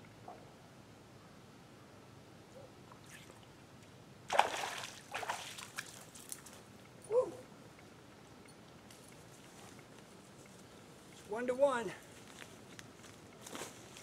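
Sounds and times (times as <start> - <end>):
water splashing: 4.3 - 6.4.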